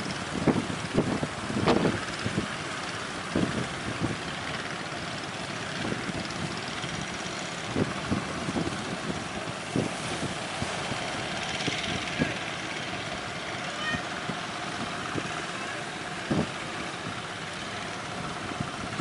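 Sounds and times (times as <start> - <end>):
sea noise: 0.0 - 19.0
wind: 0.0 - 19.0
wind buffeting microphone: 0.0 - 19.0.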